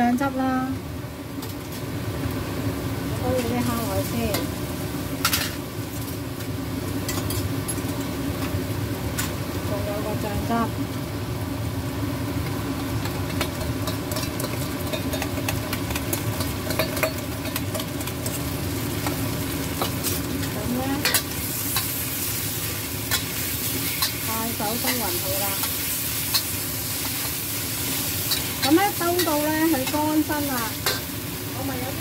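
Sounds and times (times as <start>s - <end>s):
prawns sizzling in a wok: 0.0s - 32.0s
metal spatula scraping a wok: 21.0s - 31.2s.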